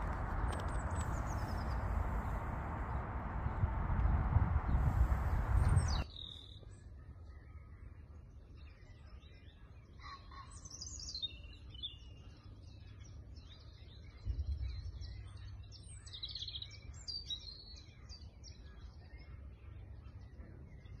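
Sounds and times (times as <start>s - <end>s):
low rumble: 0.0s - 6.0s
songbirds singing and chirping: 0.0s - 21.0s.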